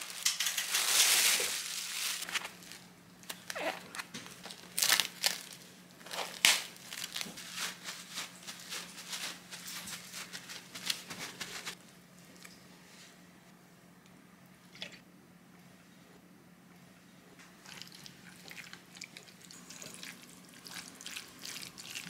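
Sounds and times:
paper towel crackling: 0.0s - 11.8s
plastic wrap crinkling: 0.0s - 11.8s.

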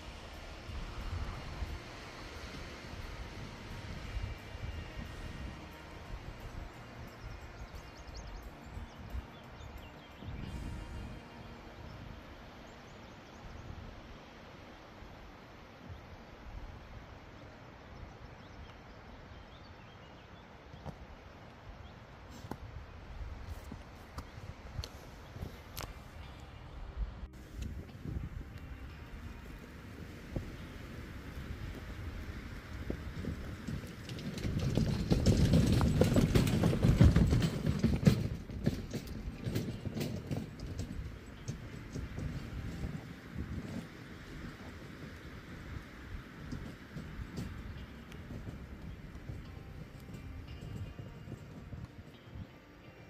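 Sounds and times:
trolley wheels rattling on rough track: 0.0s - 12.1s, 27.4s - 53.0s
steady hiss: 0.0s - 19.8s, 20.4s - 33.9s
wind rumble on microphone: 0.0s - 53.0s.

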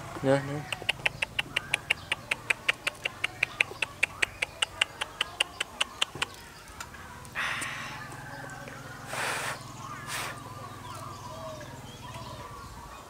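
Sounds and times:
lip clicking sounds: 0.6s - 6.9s.

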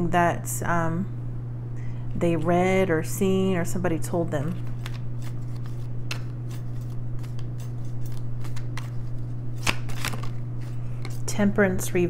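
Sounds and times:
steady low hum: 0.0s - 12.0s
cards shuffling: 4.5s - 11.3s
card snaps: 4.7s - 6.4s, 9.6s - 10.4s.

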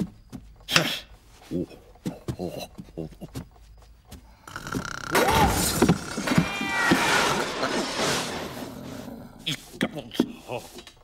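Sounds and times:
cartoon cat yowling: 6.2s - 7.6s.

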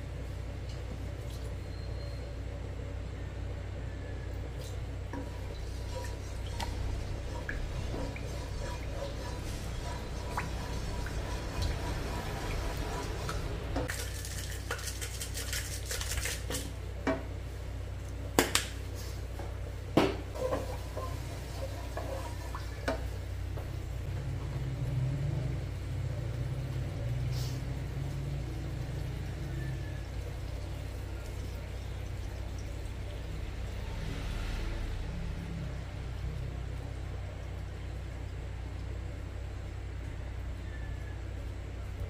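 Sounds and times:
wooden spoon stirring in a wok: 5.1s - 17.7s, 20.3s - 23.9s
jar rattling as it is shaken: 13.9s - 16.7s.

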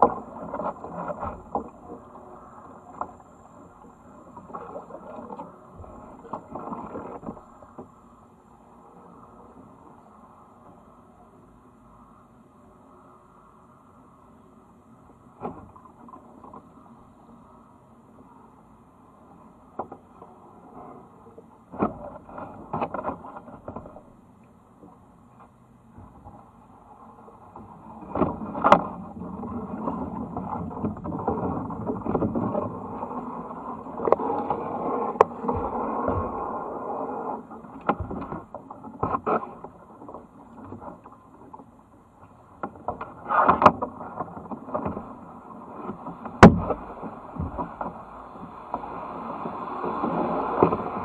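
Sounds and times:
paddle strokes splashing water: 0.0s - 11.3s, 19.1s - 51.0s
leaves brushing against boat: 26.2s - 41.8s, 42.8s - 51.0s.

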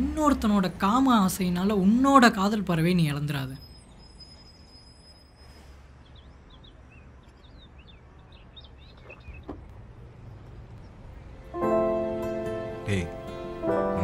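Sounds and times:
small birds chirping: 3.6s - 11.5s.

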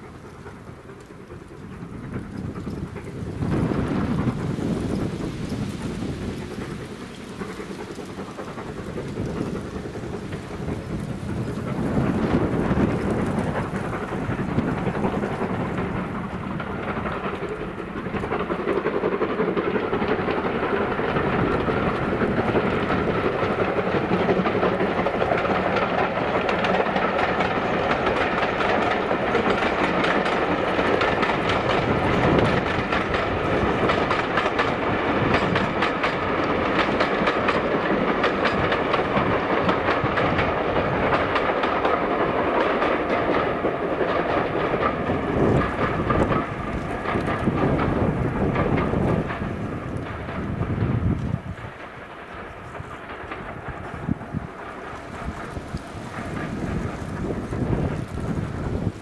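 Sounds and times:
rapid clicking of train wheels: 0.0s - 59.0s
train rumbling past: 0.0s - 59.0s.

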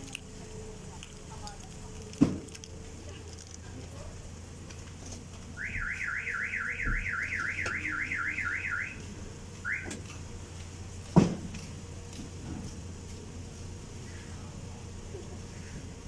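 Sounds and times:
vehicle alarm siren whooping: 5.6s - 10.0s
loud thump: 11.1s - 11.5s.

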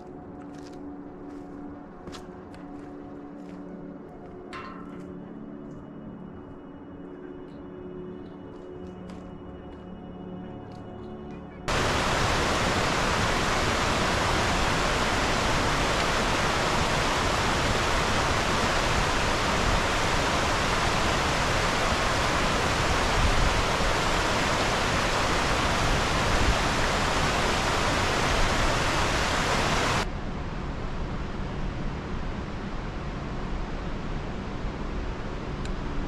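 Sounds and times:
stream rushing over cascades: 11.7s - 30.1s.

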